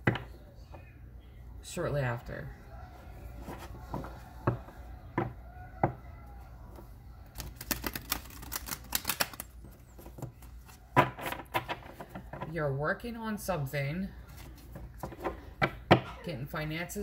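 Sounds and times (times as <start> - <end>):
cards being shuffled: 7.3 - 11.8.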